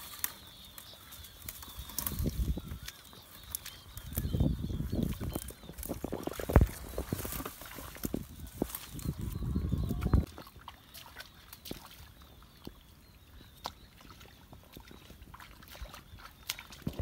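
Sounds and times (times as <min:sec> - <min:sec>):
splashes in muddy water: 0:10.0 - 0:12.8, 0:13.6 - 0:17.0.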